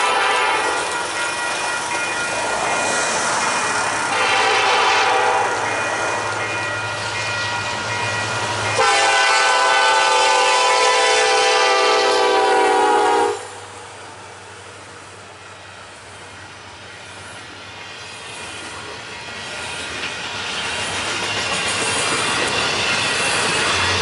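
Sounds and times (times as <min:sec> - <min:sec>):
locomotive horn blowing: 0:00.0 - 0:00.8, 0:04.1 - 0:05.6, 0:08.8 - 0:13.8
train cars rolling on rails: 0:00.0 - 0:24.0.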